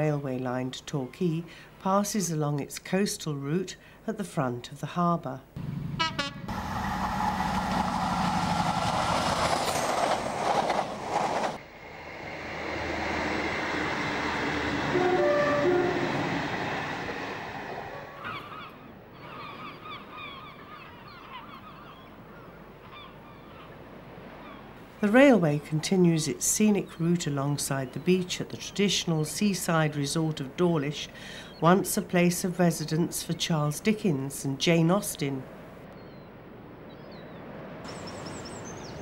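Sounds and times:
diesel train passing: 5.6s - 18.6s
train rumbling across bridge: 5.6s - 18.6s
train horn notes: 5.9s - 7.1s, 14.4s - 16.6s
birds calling: 17.6s - 24.7s, 35.9s - 39.0s.

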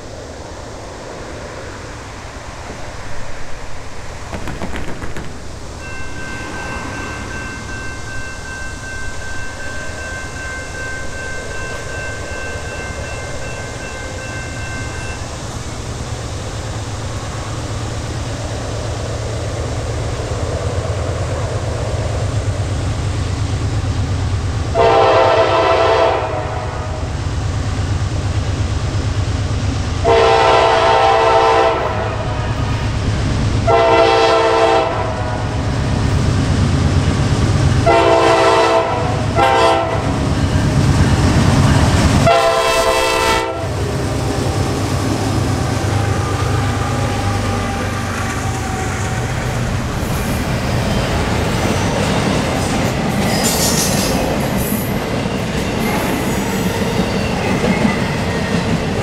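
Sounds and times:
diesel locomotive rumble: 0.0s - 59.0s
train horn blasts: 24.7s - 27.1s, 30.0s - 32.6s, 33.6s - 35.5s, 37.8s - 40.2s, 42.2s - 43.8s.

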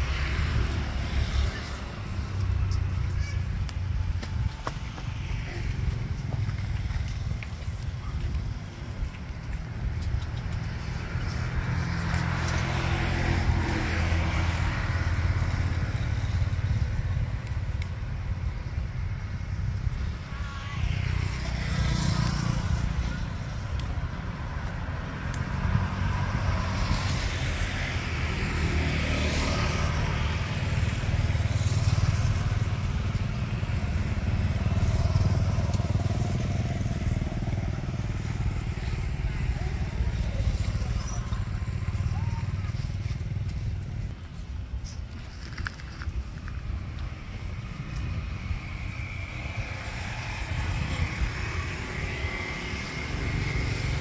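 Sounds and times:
low traffic rumble: 0.0s - 54.0s
motorbikes passing: 0.0s - 54.0s.

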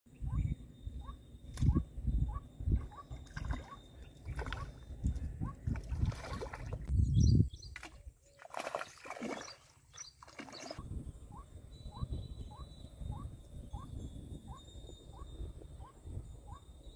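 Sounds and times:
fish thrashing and splashing water: 5.6s - 6.9s, 7.8s - 10.8s.

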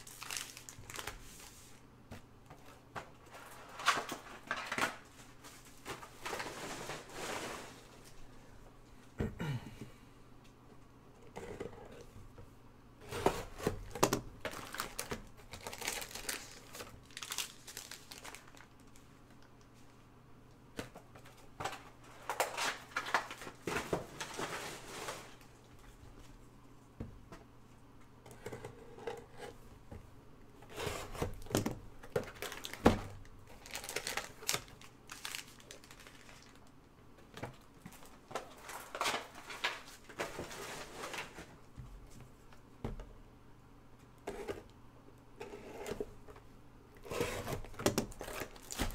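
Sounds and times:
plastic packs crinkling and tearing: 0.0s - 1.5s, 13.5s - 19.0s, 21.7s - 25.5s, 31.3s - 36.7s, 38.0s - 40.4s, 47.3s - 48.9s.

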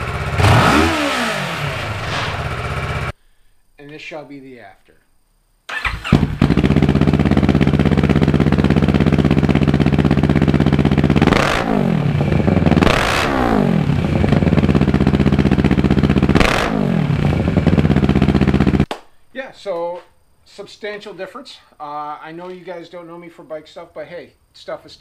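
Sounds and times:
motorcycle engine idling and revving: 0.0s - 3.1s, 5.8s - 18.8s.

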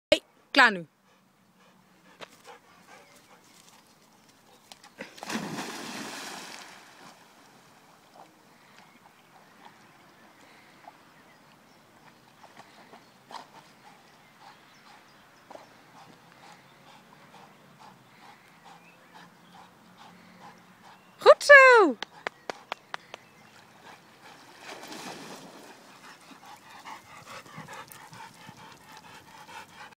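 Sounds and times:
dog panting: 1.0s - 4.6s, 13.4s - 21.2s, 25.9s - 30.0s
dog splashing into water: 5.0s - 7.5s, 24.6s - 25.9s.

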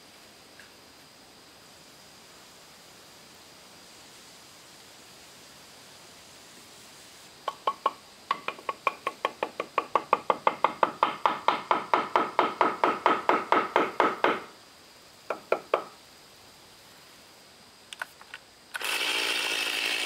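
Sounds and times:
fast sharp knocks: 7.5s - 14.5s, 15.3s - 16.0s.

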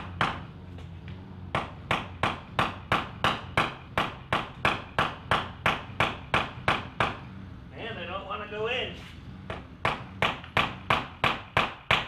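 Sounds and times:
hammer knocking into wood panel: 9.5s - 12.0s.

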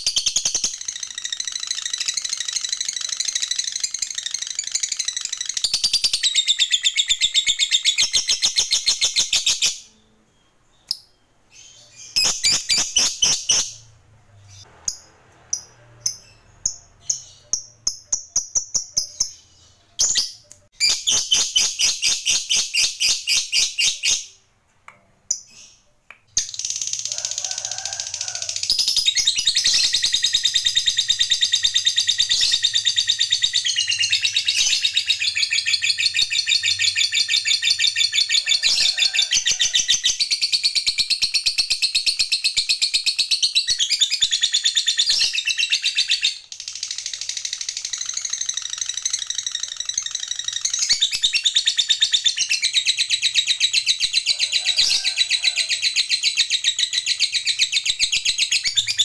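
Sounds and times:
lovebird chattering trill: 11.6s - 13.9s, 14.5s - 24.3s.

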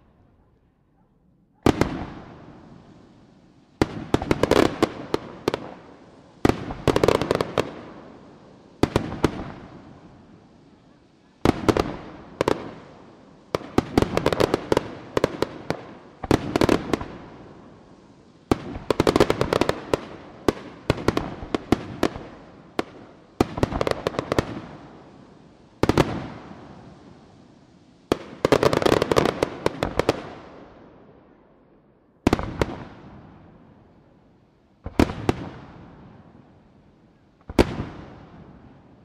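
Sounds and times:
firework crackling: 1.6s - 30.8s, 34.8s - 36.8s.

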